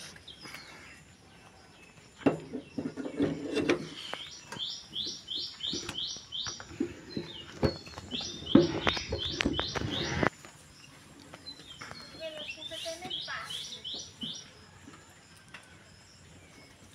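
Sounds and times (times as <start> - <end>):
knocks and clatter of work: 5.7 - 10.3.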